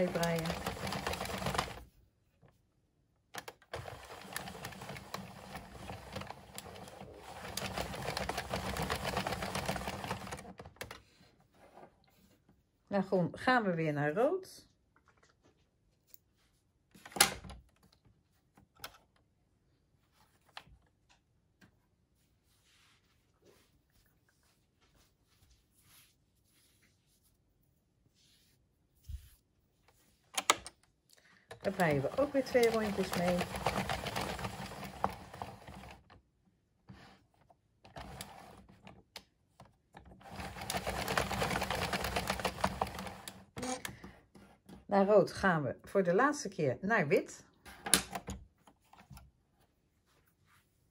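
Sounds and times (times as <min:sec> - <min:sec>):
knitting machine clicks and knocks: 0:00.0 - 0:01.8, 0:03.4 - 0:11.0, 0:31.5 - 0:36.0, 0:40.2 - 0:43.4.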